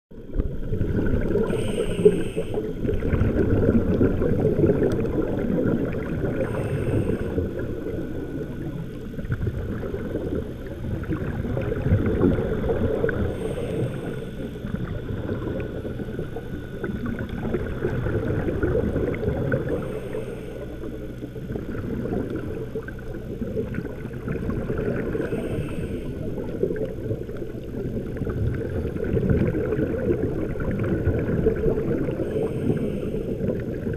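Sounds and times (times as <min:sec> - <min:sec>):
low rumble of moving water: 0:00.1 - 0:33.9
diver regulator breathing hiss: 0:01.2 - 0:03.0, 0:06.2 - 0:08.7, 0:13.0 - 0:14.8, 0:19.5 - 0:21.0, 0:25.0 - 0:26.7, 0:32.0 - 0:33.8.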